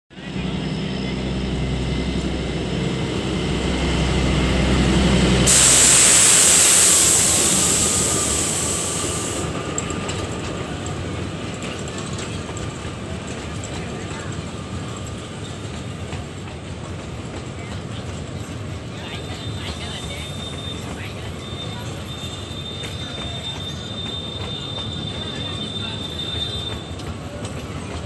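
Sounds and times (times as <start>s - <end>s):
diesel locomotive engine: 0.1s - 28.0s
train wheels clicking: 3.6s - 28.0s
loud hiss: 5.2s - 9.5s.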